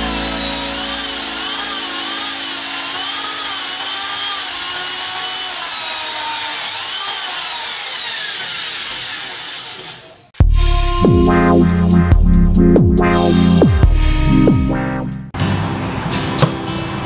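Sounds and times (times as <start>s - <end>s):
electric motor gear whine: 0.0s - 6.0s.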